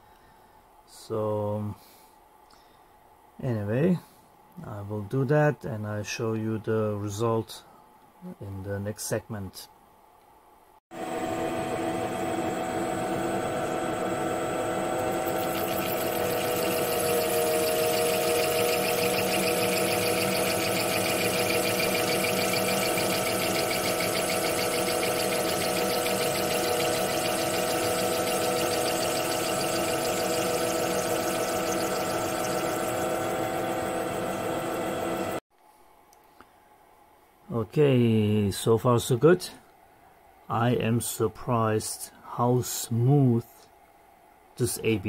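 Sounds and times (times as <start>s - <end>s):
lathe motor whine: 11.0s - 35.4s.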